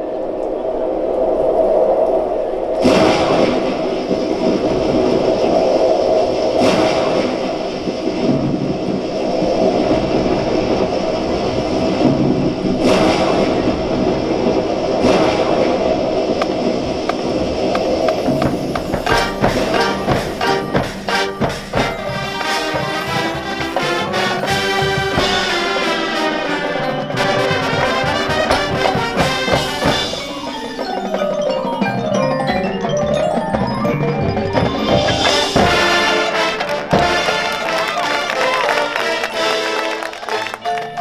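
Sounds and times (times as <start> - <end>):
marching band playing: 18.1 - 41.0
marimbas and mallet percussion: 19.0 - 25.8, 26.5 - 36.2, 40.6 - 41.0.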